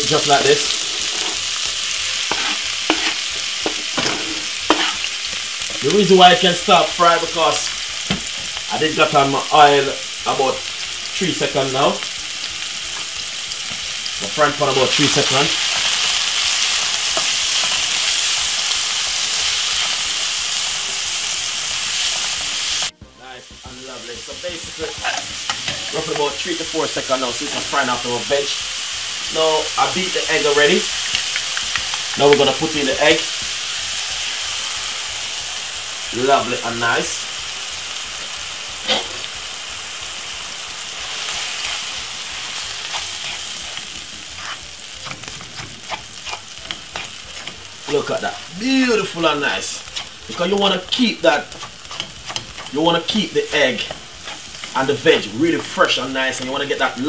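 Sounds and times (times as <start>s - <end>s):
vegetables sizzling in hot oil: 0.0s - 57.0s
spatula stirring in wok: 0.5s - 5.8s, 12.2s - 27.8s, 37.4s - 56.6s
spatula scraping and tapping pan: 2.2s - 5.8s, 23.0s - 26.4s, 31.1s - 32.5s, 42.6s - 48.4s, 49.8s - 56.6s.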